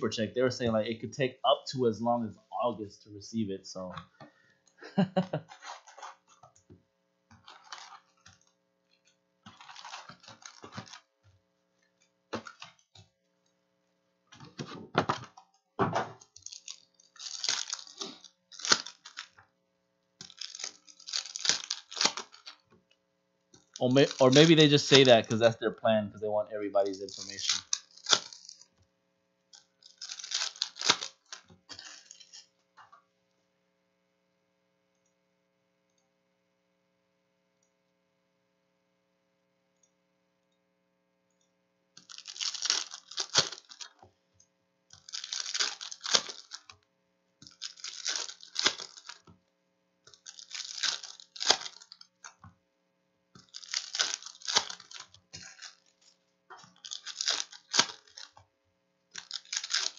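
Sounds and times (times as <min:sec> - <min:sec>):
wrappers torn and crinkled: 0:05.5 - 0:06.2, 0:07.4 - 0:08.4, 0:09.5 - 0:11.1, 0:16.3 - 0:19.4, 0:20.2 - 0:22.7, 0:23.6 - 0:25.2, 0:26.8 - 0:28.7, 0:29.6 - 0:32.5, 0:42.0 - 0:44.0, 0:45.0 - 0:46.8, 0:47.4 - 0:49.3, 0:50.1 - 0:52.4, 0:53.4 - 0:58.4, 0:59.1 - 0:59.9.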